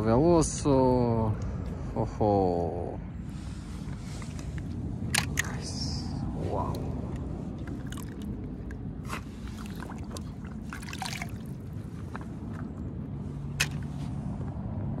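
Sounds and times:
stream trickling over rocks: 7.5 - 12.7
water splashes and drips: 7.5 - 12.7, 13.6 - 13.9.

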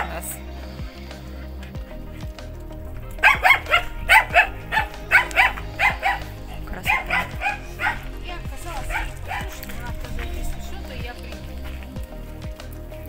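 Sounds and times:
small dog yapping: 3.2 - 8.1, 8.9 - 9.6.

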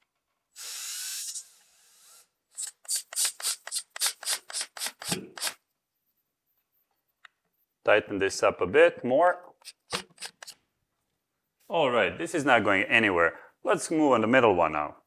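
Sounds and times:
cordless drill driving screw: 0.6 - 5.6, 9.6 - 10.6.

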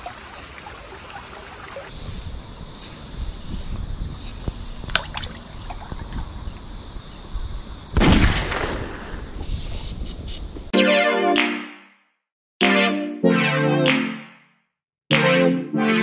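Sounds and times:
mountain stream running: 0.0 - 6.8.

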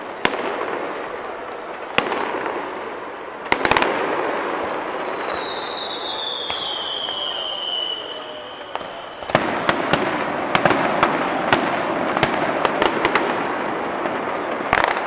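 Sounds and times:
fireworks cracking and banging: 0.0 - 15.0
firework whistle falling: 3.6 - 10.2.

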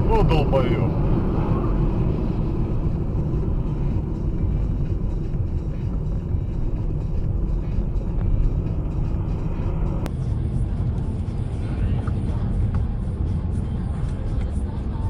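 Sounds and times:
car interior road rumble: 0.0 - 15.0.

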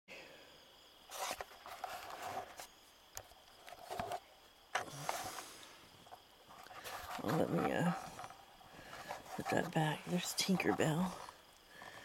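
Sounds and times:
rustling and handling noise: 1.0 - 12.0.

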